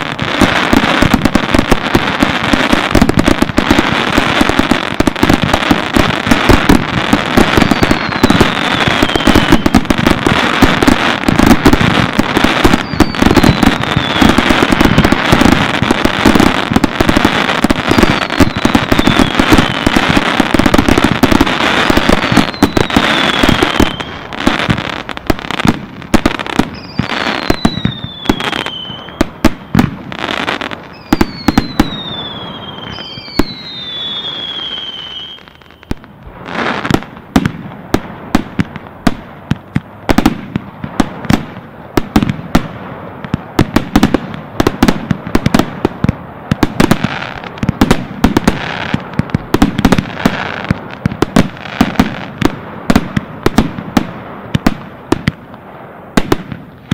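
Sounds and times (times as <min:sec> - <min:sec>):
falling firework whistles: 0:00.0 - 0:37.5
firework bursts and bangs: 0:00.0 - 0:56.9.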